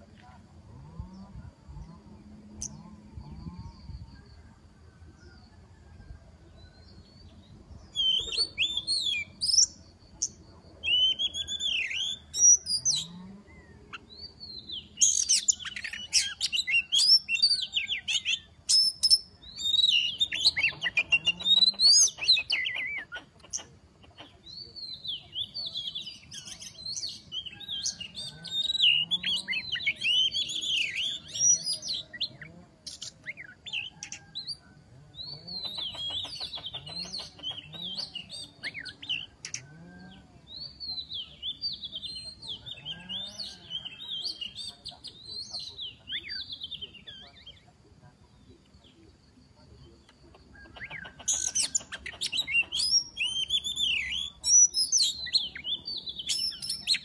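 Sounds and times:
bird singing whistles and chirps: 7.9s - 9.8s, 10.8s - 13.1s, 13.9s - 23.2s, 50.8s - 57.0s.

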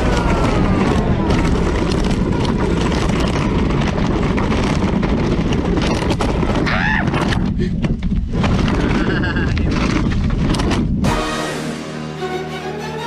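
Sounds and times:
quad bike motor whine: 0.0s - 7.3s
steady rushing noise: 0.0s - 13.0s.

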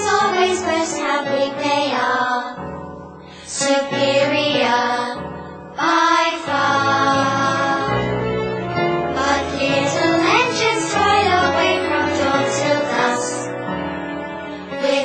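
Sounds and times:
backing music: 5.8s - 15.0s.

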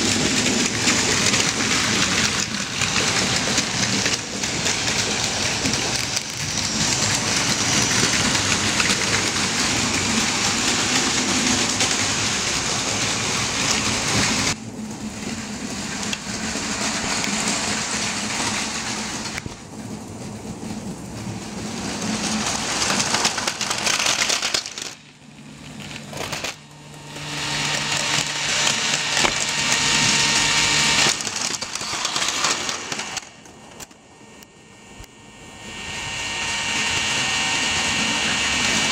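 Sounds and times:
toy trains rattling on plastic track: 0.0s - 14.6s, 15.6s - 19.5s, 21.3s - 26.6s, 27.2s - 34.0s.

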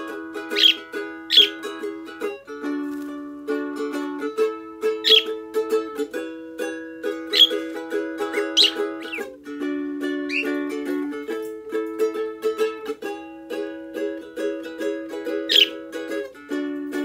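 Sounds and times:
parrot chirping: 0.0s - 1.8s, 5.0s - 5.4s, 7.1s - 9.4s, 10.3s - 10.6s, 15.4s - 15.9s
ukulele strumming: 0.0s - 17.0s.

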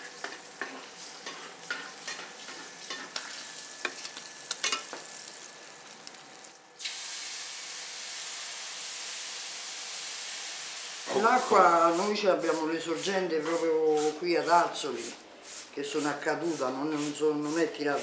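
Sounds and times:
spatula scraping a pan: 0.0s - 4.0s, 11.3s - 18.0s
fish sizzling in a pan: 0.0s - 12.6s
steam hissing from water: 6.8s - 12.7s.

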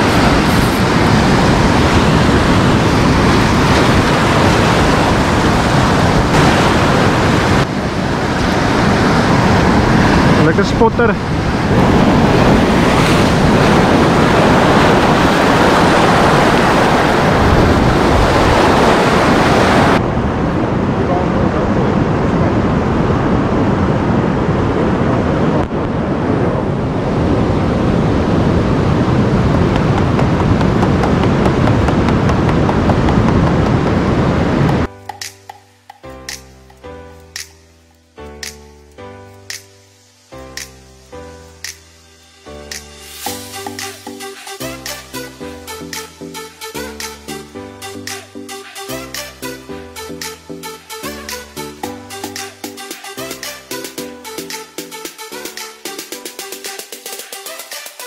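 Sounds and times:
surf breaking over rocks: 0.0s - 20.0s
wind rumbling on microphone: 0.0s - 34.9s.

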